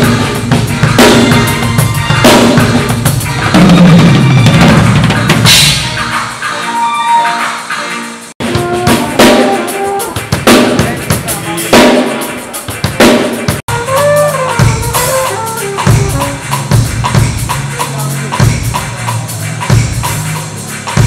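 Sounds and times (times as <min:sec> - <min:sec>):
drum kit playing: 0:00.0 - 0:21.0
bass notes: 0:13.7 - 0:20.8.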